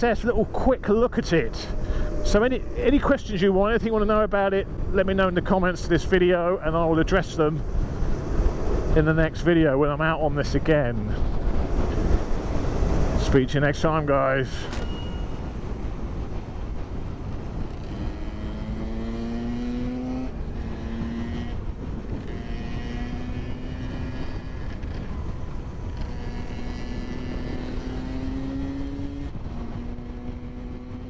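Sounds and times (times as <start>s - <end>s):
wind rushing over microphone: 0.0s - 31.0s
electric motorcycle whine: 17.6s - 31.0s.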